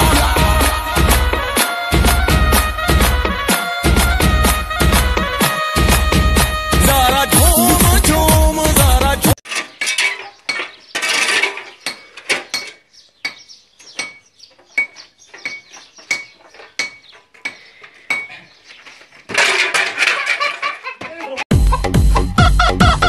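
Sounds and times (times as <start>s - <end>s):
shovel scraping stony ground: 9.4s - 12.8s, 18.7s - 20.8s.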